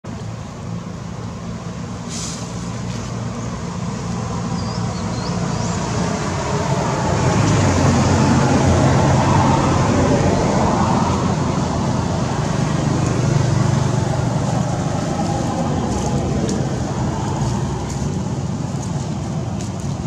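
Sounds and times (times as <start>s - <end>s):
traffic noise: 0.0s - 20.0s
vehicle engine hum: 0.0s - 20.0s.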